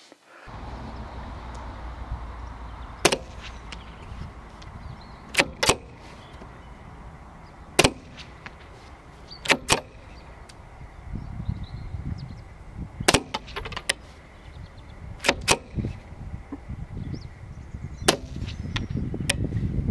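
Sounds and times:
rifle bolt clacking: 0:04.6 - 0:06.5, 0:07.8 - 0:10.6.

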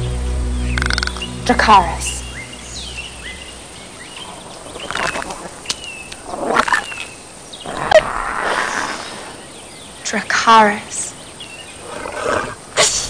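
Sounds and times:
creature squeaking and chittering: 0:04.3 - 0:07.1.

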